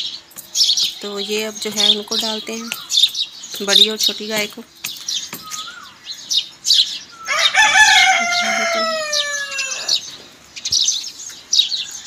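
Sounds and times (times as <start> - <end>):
small birds chirping: 0.0 - 12.0
rooster crowing: 7.2 - 10.0.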